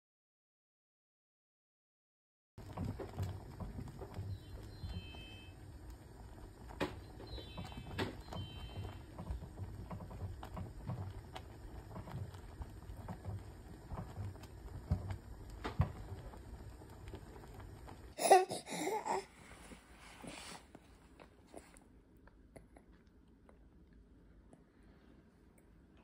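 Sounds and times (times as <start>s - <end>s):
spatula stirring porridge: 2.6s - 18.2s
infant crying: 18.2s - 19.3s.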